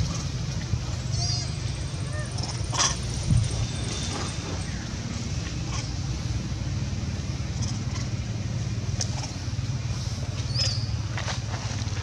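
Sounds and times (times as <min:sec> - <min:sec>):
low rumble: 0:00.0 - 0:12.0
bird chirp: 0:10.4 - 0:11.0.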